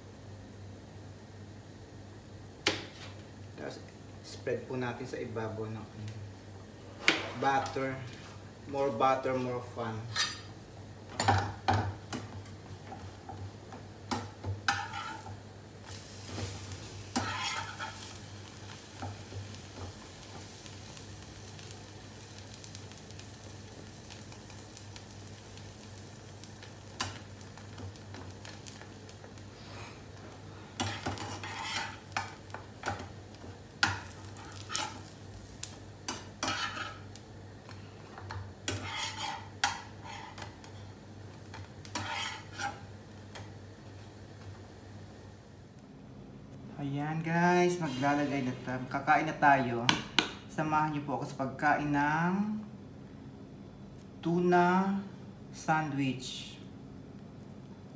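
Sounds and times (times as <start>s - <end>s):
bread sizzling in frying pan: 0.0s - 45.7s
spatula scraping and knocking pan: 14.1s - 15.4s, 17.1s - 18.1s, 30.8s - 33.1s, 36.1s - 37.0s, 38.2s - 40.5s, 41.5s - 42.8s.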